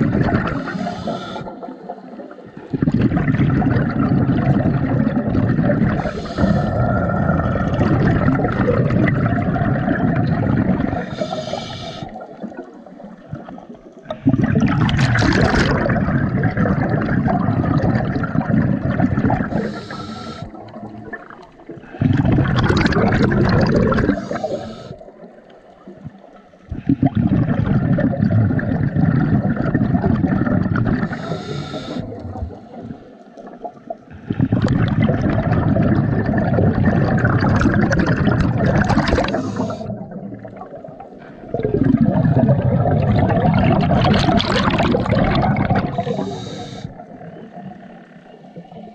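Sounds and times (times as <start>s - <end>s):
exhaled bubbles rushing underwater: 0.0s - 48.9s
regulator hissing inhalations: 0.6s - 1.6s, 6.0s - 6.8s, 11.0s - 12.2s, 19.5s - 20.6s, 24.1s - 25.1s, 31.1s - 32.1s, 39.2s - 40.0s, 45.9s - 47.0s.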